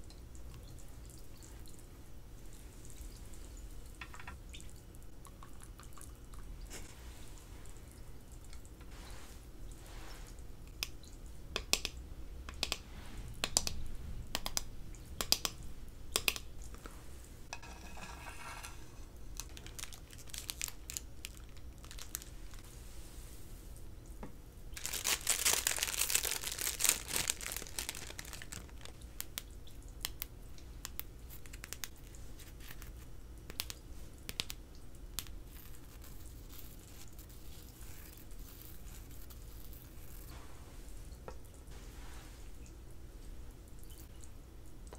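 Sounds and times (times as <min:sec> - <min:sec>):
crackling and crunching: 0:18.5 - 0:22.6, 0:24.7 - 0:30.2.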